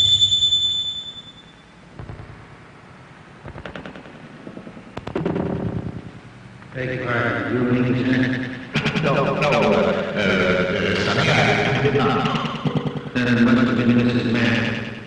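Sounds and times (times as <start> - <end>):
high ringing tone: 0.0 - 1.9
rapid sharp cracks: 2.0 - 2.6, 3.4 - 6.7.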